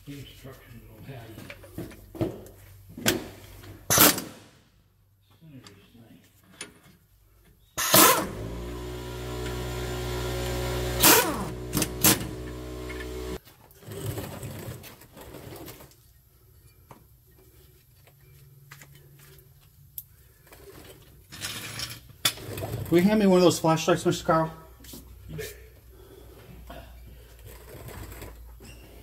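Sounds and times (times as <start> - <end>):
pneumatic impact wrench: 3.9 - 4.4, 7.8 - 13.4.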